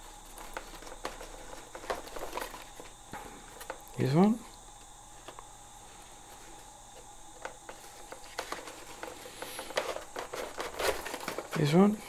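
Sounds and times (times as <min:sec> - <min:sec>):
wires rustling: 0:00.0 - 0:04.4, 0:05.1 - 0:12.0.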